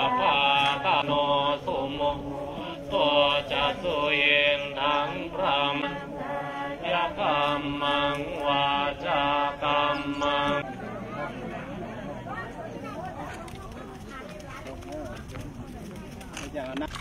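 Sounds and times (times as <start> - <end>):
person chanting melodic recitation: 0.0 - 12.2.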